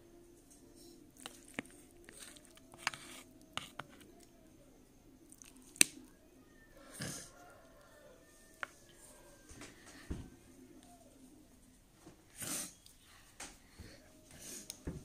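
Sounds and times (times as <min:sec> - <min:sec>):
spoon scraping food: 0:01.2 - 0:04.3.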